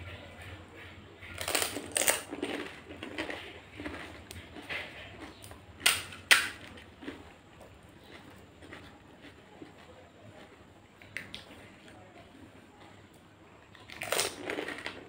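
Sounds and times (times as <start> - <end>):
crunchy chewing: 0.0 - 12.0, 13.7 - 15.0
crunching crisp shells: 1.2 - 9.9, 13.8 - 15.0
shell cracking open: 5.8 - 6.7.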